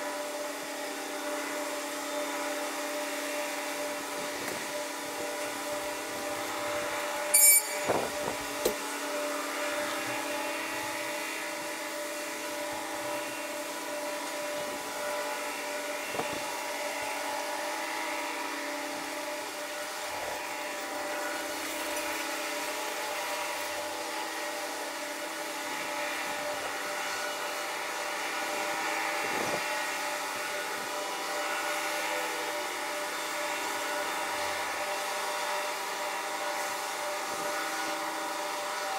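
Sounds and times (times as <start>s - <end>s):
steady high whine: 3.7s - 15.0s.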